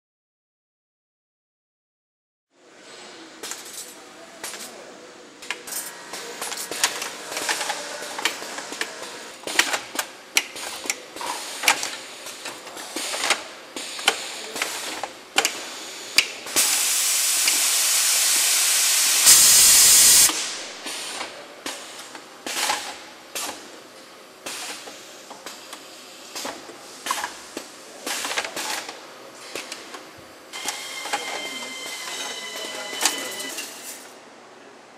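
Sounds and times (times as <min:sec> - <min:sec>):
loud air hiss: 0:15.6 - 0:21.2.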